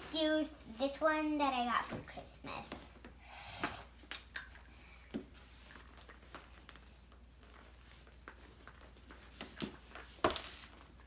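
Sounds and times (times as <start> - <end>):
soft rustle: 5.3 - 11.0.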